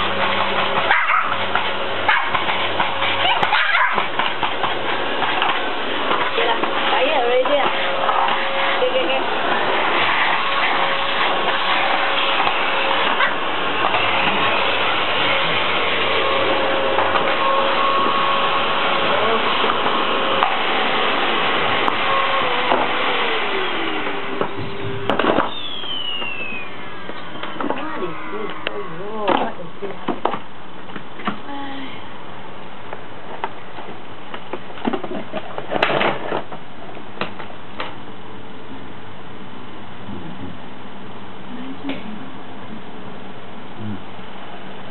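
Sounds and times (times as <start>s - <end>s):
nozzle sweeping over tiles: 0.0s - 30.2s
vacuum cleaner motor whine: 4.0s - 30.4s.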